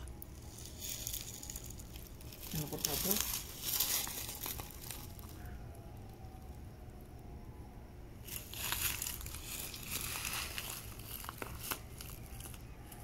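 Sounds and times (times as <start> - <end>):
wrapper crinkling and rustling: 0.3 - 5.4, 8.3 - 13.0.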